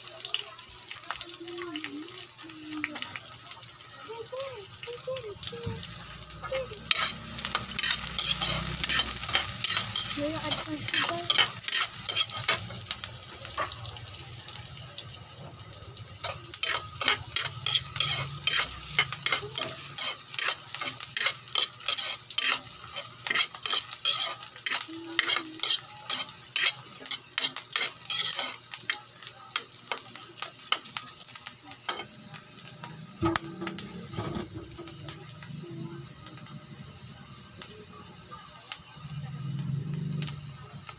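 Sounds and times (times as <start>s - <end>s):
onion and garlic sizzling in oil: 0.0s - 40.9s
metal spatula scraping a wok: 6.0s - 13.8s, 14.9s - 29.0s, 33.2s - 35.4s.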